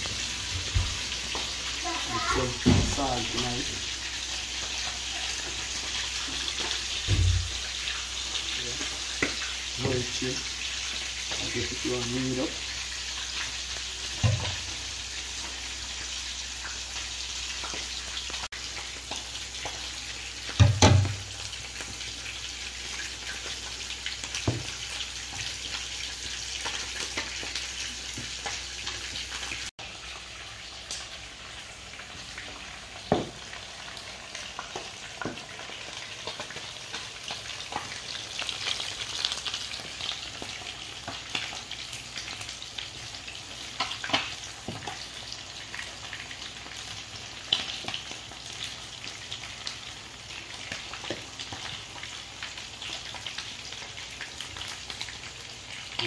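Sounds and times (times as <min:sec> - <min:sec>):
fish sizzling in hot oil: 0:00.0 - 0:56.0.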